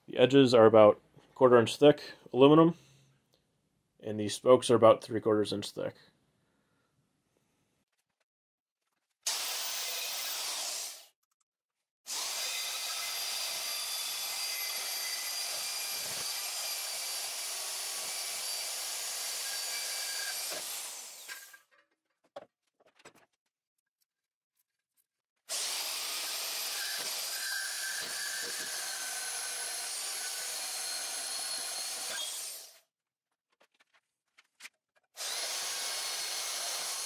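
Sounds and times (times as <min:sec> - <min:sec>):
band saw cutting metal: 0:12.1 - 0:21.6, 0:25.5 - 0:32.8, 0:35.2 - 0:37.0.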